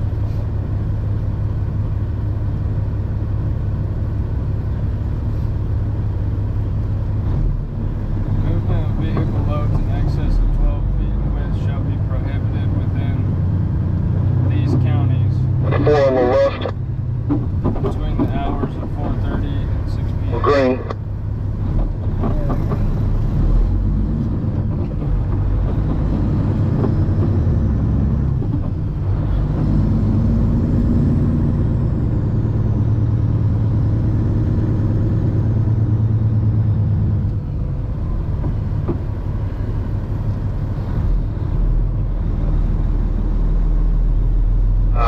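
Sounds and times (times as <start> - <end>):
diesel truck engine under load: 0.0 - 45.0.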